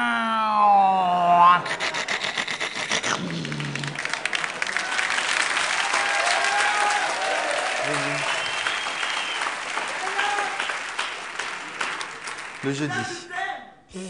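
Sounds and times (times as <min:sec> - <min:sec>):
audience applauding: 0:02.9 - 0:13.2.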